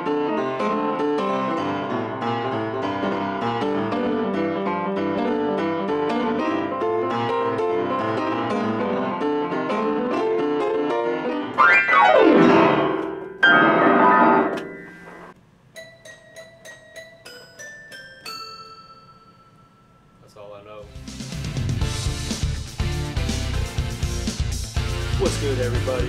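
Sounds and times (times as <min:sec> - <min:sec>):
upright piano chords and runs: 0:00.0 - 0:15.4
piano glissandos: 0:00.0 - 0:17.6.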